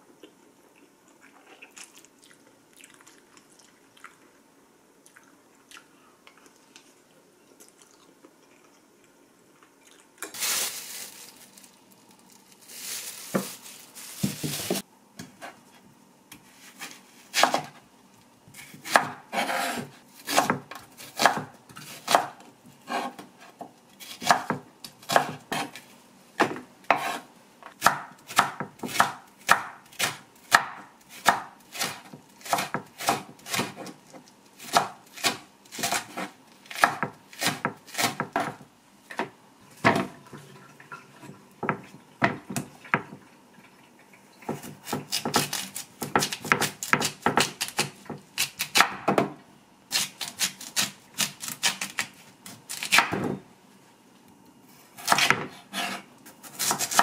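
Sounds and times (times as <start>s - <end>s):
knife chopping on cutting board: 16.8s - 17.7s, 18.6s - 23.3s, 24.1s - 25.8s, 26.4s - 34.0s, 44.5s - 53.4s, 55.0s - 57.0s.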